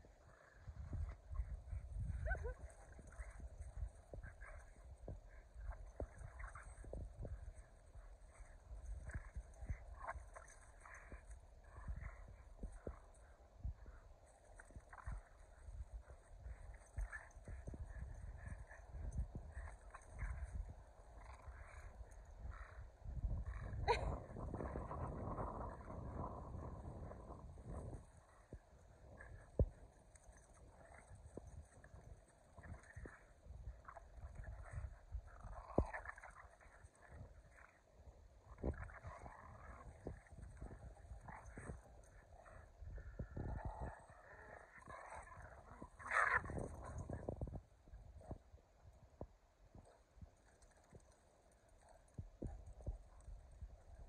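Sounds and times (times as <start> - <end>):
dogs growling and vocalizing: 0.6 - 37.7, 38.6 - 47.2.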